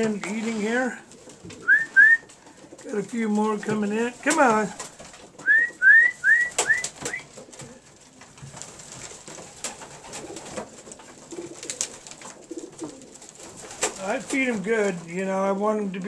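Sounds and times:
pigeons cooing: 1.0s - 3.1s, 4.8s - 8.1s, 9.4s - 14.0s
pigeon wings flapping: 4.2s - 14.7s.

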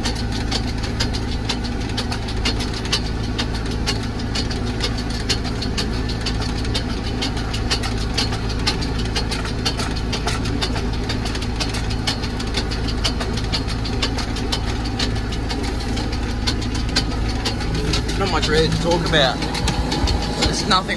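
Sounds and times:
sharp clicks and rattles: 0.0s - 20.9s
tractor engine running: 0.0s - 20.9s.

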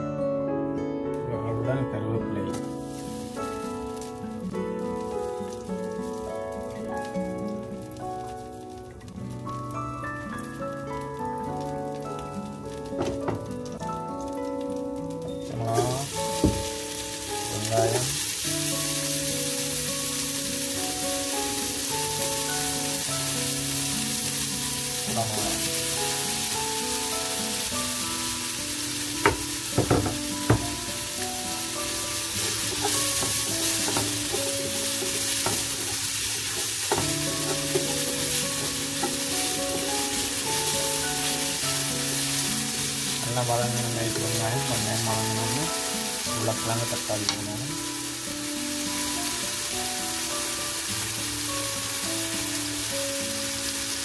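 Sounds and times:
vegetables sizzling in oil: 2.5s - 54.0s
wooden spatula stirring: 31.9s - 45.7s.

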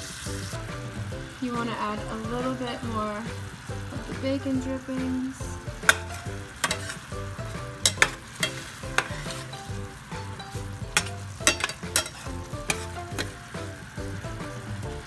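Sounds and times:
food sizzling in a pot: 0.0s - 15.0s
light plucked background music: 0.0s - 15.0s
spatula knocking and scraping pot: 5.7s - 13.6s.

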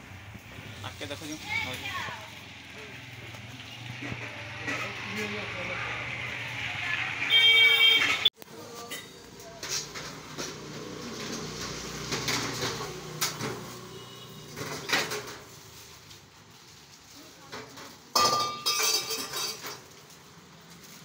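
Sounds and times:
steel utensils clattering: 3.6s - 5.4s, 17.5s - 20.1s.

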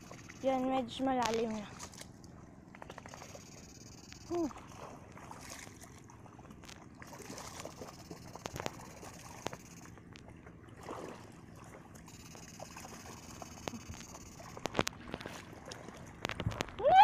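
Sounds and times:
wading through shallow water: 0.0s - 17.0s
small clicks: 7.9s - 10.3s.

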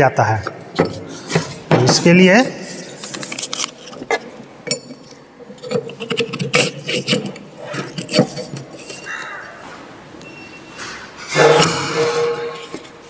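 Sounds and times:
metal clicks clinks and scrapes: 3.1s - 9.4s.

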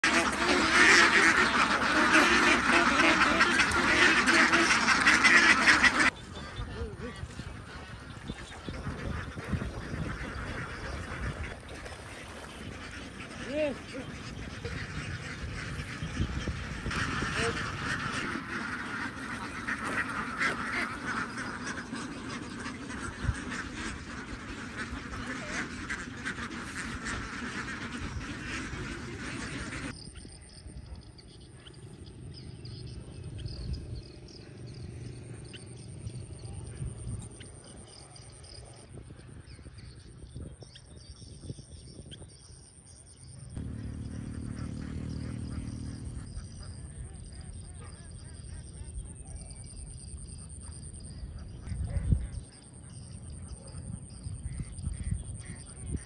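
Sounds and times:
ducks quacking: 0.0s - 30.0s, 43.6s - 56.0s.

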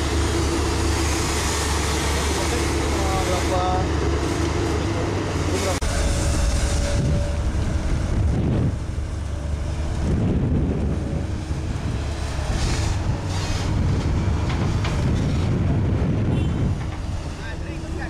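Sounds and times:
excavator diesel engine running: 0.0s - 18.0s
wind noise on microphone: 5.8s - 17.4s.

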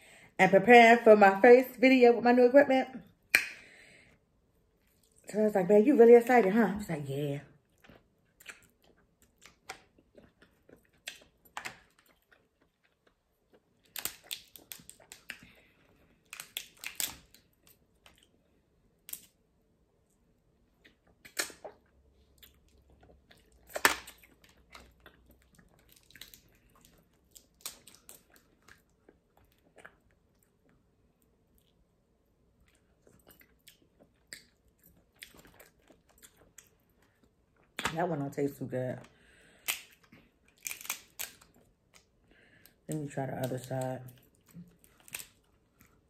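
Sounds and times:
chewing and sucking mouth sounds: 7.6s - 17.0s, 20.7s - 31.9s, 32.5s - 37.8s
crab shells crunching: 8.4s - 18.2s, 39.5s - 42.1s, 43.3s - 46.0s.

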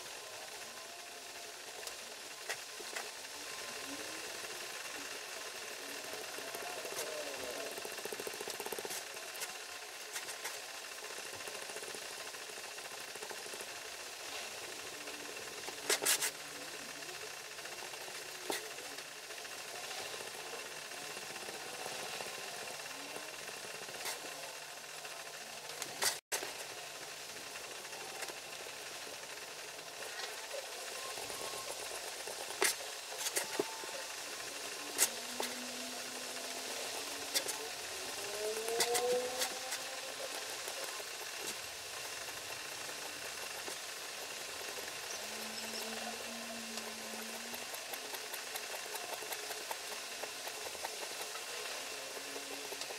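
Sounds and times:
pyrography pen hissing on wood: 0.1s - 52.9s.

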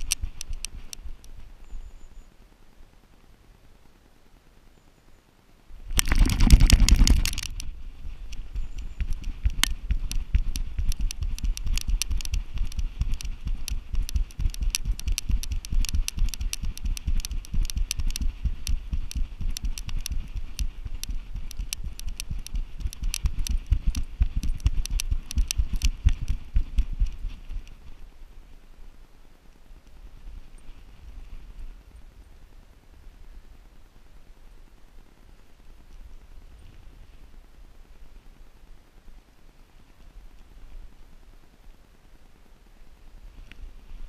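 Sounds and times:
rhythmic low thumps: 5.9s - 27.7s.

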